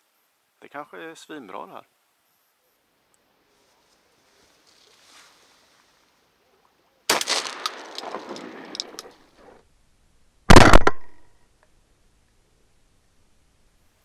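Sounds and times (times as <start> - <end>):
shotgun blast: 7.1 - 9.1, 10.5 - 11.2.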